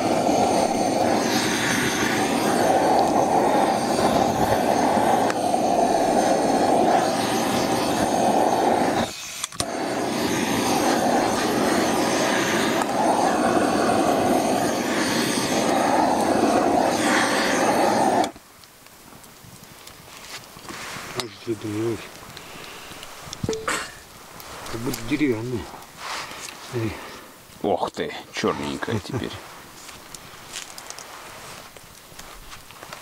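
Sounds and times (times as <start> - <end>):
gas torch flame rushing: 0.0 - 18.4, 19.8 - 27.6.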